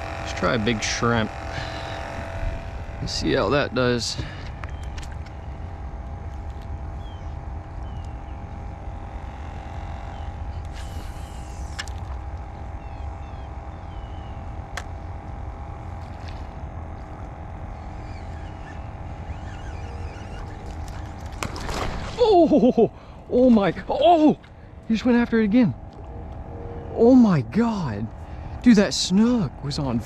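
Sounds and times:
low rumble: 0.0 - 29.7
faint steady hum: 0.0 - 30.0
fish splashing at water surface: 20.6 - 22.3.

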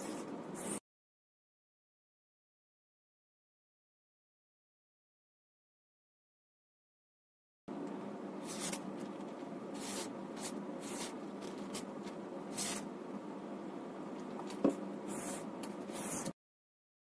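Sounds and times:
steady background hum: 0.0 - 0.8, 7.7 - 16.3
knife slicing paper: 8.4 - 8.9, 9.8 - 11.9, 12.5 - 12.9.

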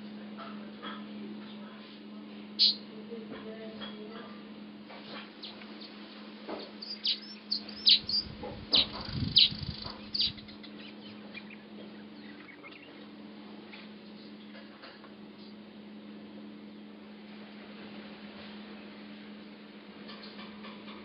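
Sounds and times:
bird chirping: 2.6 - 2.8, 5.4 - 6.0, 6.6 - 13.1.

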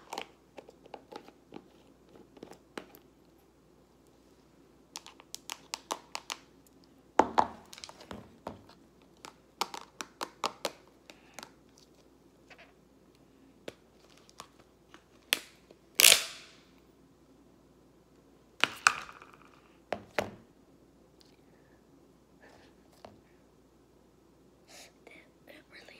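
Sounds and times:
plastic tub clicks and crinkles: 5.0 - 6.5, 7.6 - 12.0.

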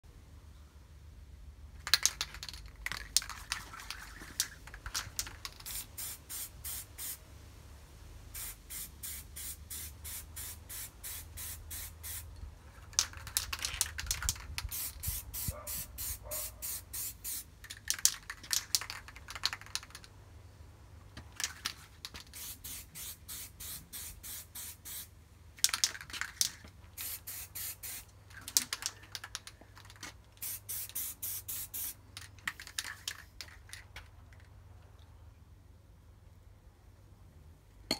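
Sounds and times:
aerosol spray hisses: 5.7 - 7.2, 14.7 - 17.4.

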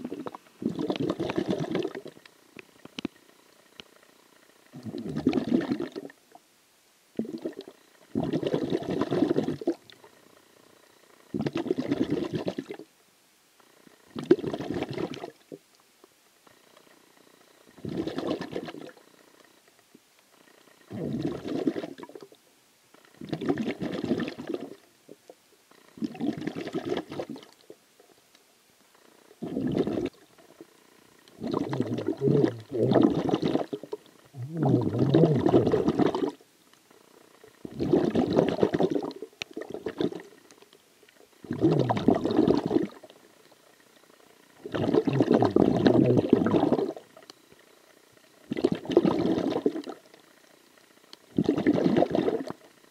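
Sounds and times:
breath bubbling underwater: 0.0 - 2.1, 4.8 - 6.2, 7.2 - 9.8, 11.4 - 12.8, 14.2 - 15.3, 17.8 - 18.9, 20.9 - 22.3, 23.2 - 24.8, 26.0 - 27.5, 29.4 - 30.2, 31.4 - 36.4, 37.7 - 40.3, 41.4 - 43.1, 44.6 - 47.0, 48.5 - 50.0, 51.4 - 52.6.

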